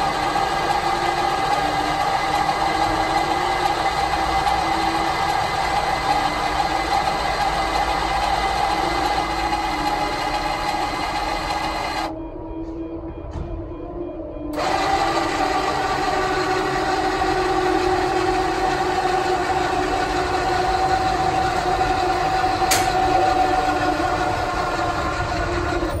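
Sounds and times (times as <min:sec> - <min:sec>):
electric motors whining: 0:00.0 - 0:12.4, 0:14.4 - 0:26.0
click: 0:22.7 - 0:23.0.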